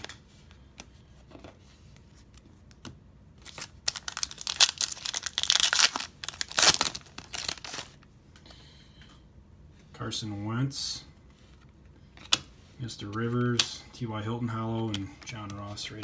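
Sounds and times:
plastic wrapper tearing and crinkling: 3.4 - 8.0.

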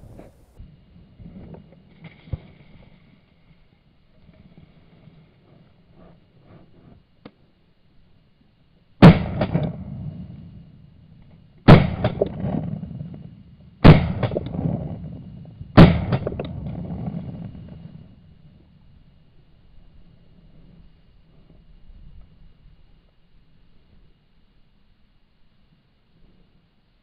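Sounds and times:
shotgun shots with echo: 9.0 - 10.6, 11.7 - 17.7.

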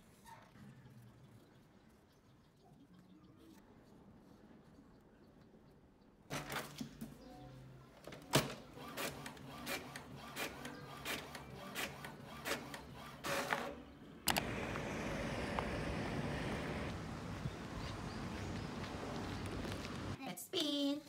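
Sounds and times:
inkjet printer printing: 8.0 - 16.9
street noise: 8.9 - 20.2.

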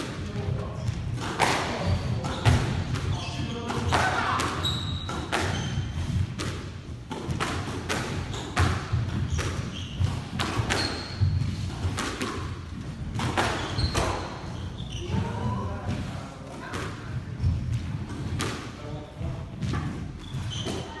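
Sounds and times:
shoes squeaking: 0.7 - 6.1, 7.9 - 12.5, 13.2 - 15.7, 19.0 - 21.0.

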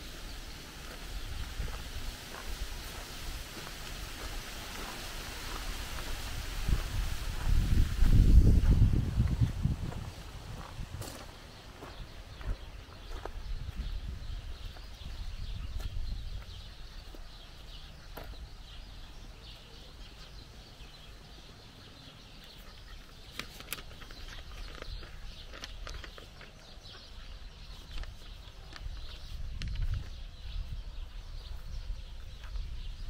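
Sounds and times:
birds calling and chirping: 0.0 - 33.0
footsteps on gravel: 0.8 - 18.5, 23.4 - 30.2.

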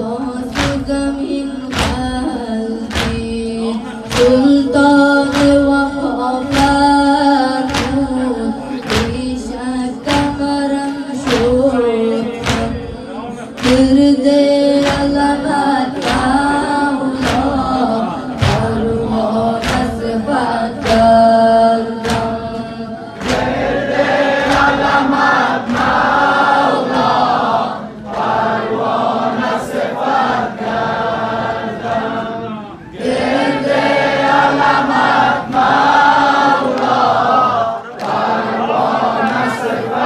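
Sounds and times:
sharp hand beats: 0.0 - 31.6
boy chanting over microphone: 0.0 - 40.0
men singing in unison: 0.0 - 40.0.

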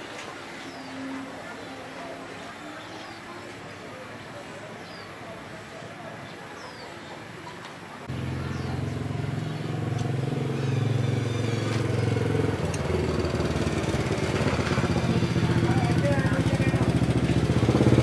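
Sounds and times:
small motorcycle engine running: 8.1 - 18.0.

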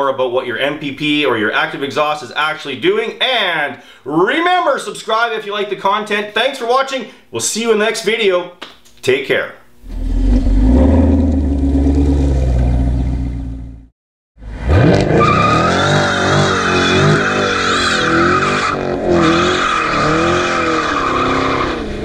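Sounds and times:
car engine deep rumble and revving: 9.8 - 22.0
tires squealing: 14.6 - 22.0.

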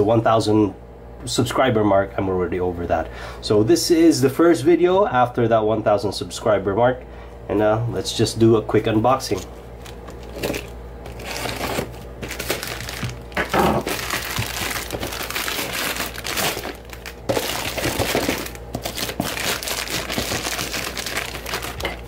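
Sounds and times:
plastic wrapping crinkling and tearing: 9.8 - 22.0.

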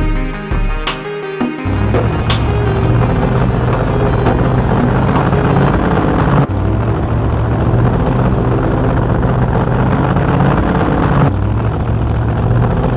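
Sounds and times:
vehicle engine running: 1.7 - 12.9.

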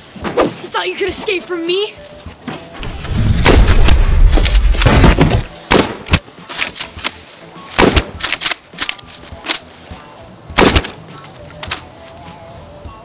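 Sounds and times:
gunfire bursts and single shots: 4.8 - 6.2, 7.8 - 8.5, 10.6 - 11.0.

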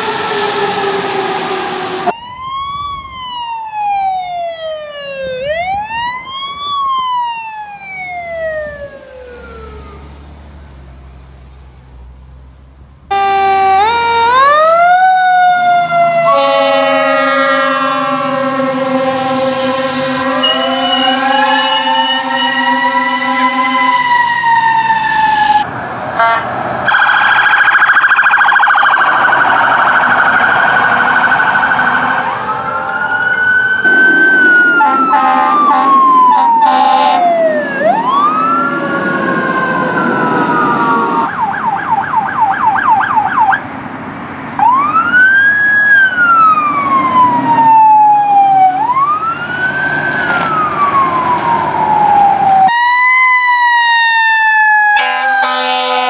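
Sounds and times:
rapid siren yelp: 0.0 - 10.2, 13.1 - 26.3, 26.9 - 43.6, 44.6 - 56.0
emergency sirens wailing: 0.0 - 10.8, 13.1 - 43.8, 44.4 - 56.0
warbling siren tone: 13.1 - 25.7, 26.9 - 43.6, 44.6 - 56.0.

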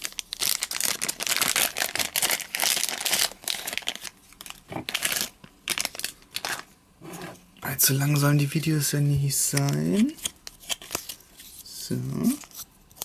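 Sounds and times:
wrapper crinkling: 0.0 - 6.7.

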